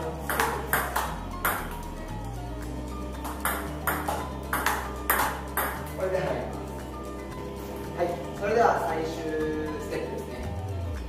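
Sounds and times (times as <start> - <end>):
background music with held chords: 0.0 - 11.0
table tennis ball clicks: 3.2 - 5.9.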